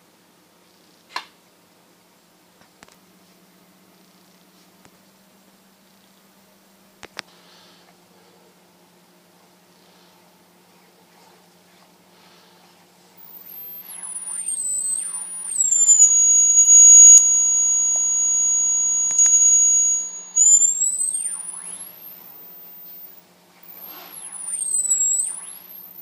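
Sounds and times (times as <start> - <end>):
sharp clicks: 13.2 - 22.6
piercing square-wave tone: 13.2 - 26.0.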